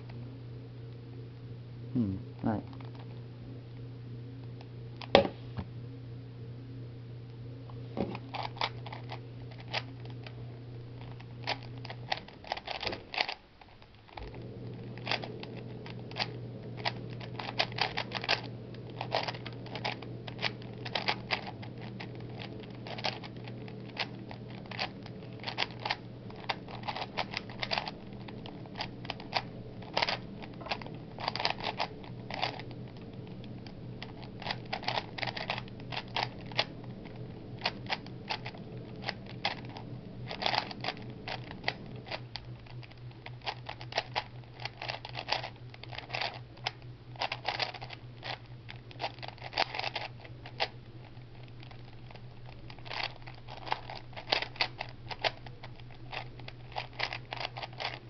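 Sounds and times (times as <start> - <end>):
steady low hum: 0.0 - 58.0
puzzle cube plastic clicking: 11.0 - 14.2, 14.8 - 58.0.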